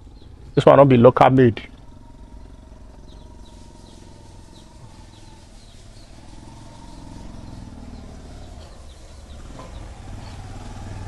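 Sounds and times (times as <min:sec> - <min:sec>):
low background rumble: 0:00.0 - 0:10.3
small birds chirping: 0:00.0 - 0:11.0.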